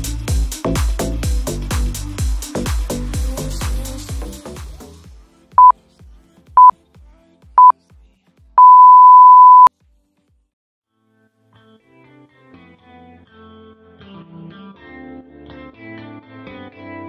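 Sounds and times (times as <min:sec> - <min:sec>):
timer beeps: 0:08.6 - 0:09.7.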